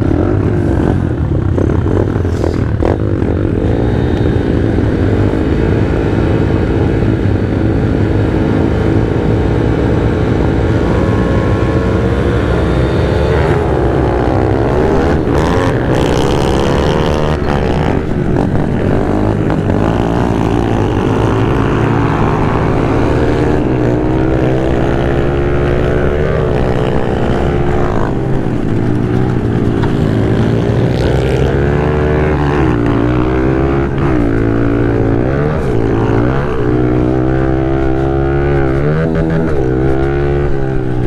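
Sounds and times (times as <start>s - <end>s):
pit bike engines revving: 0.0s - 41.0s.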